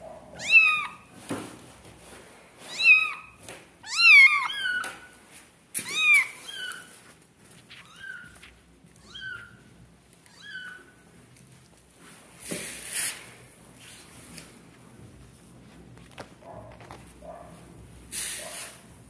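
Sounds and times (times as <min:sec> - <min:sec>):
kittens mewing: 0:00.3 - 0:01.1.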